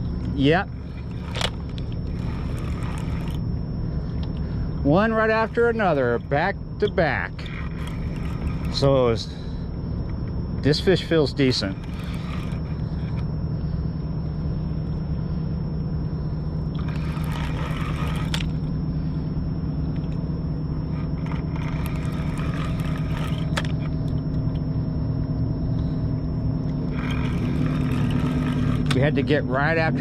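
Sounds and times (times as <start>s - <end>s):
ship engine drone: 0.0s - 30.0s
fishing reel clicking: 0.9s - 3.4s, 7.4s - 8.9s, 11.7s - 13.2s, 16.7s - 18.7s, 20.9s - 23.8s, 26.9s - 29.2s.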